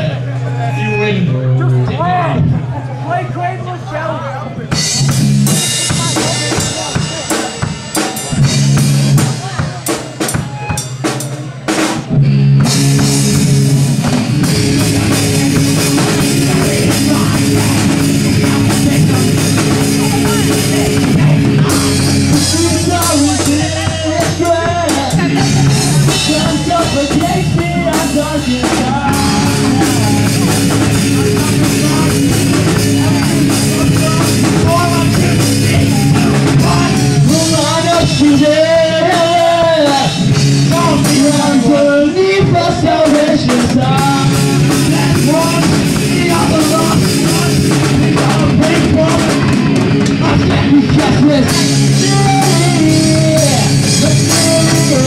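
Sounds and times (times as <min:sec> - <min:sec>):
rock band playing: 0:00.0 - 0:55.0
drum hits: 0:04.7 - 0:55.0
person singing: 0:14.4 - 0:55.0.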